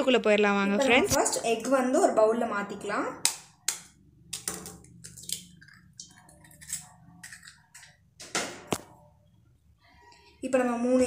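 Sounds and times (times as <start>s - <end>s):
eggshells cracking: 3.2s - 8.0s.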